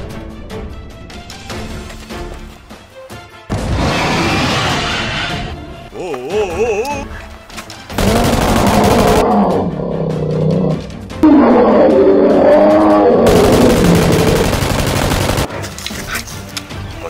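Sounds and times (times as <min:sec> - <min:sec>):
beast roars falling in pitch: 0:09.0 - 0:14.3.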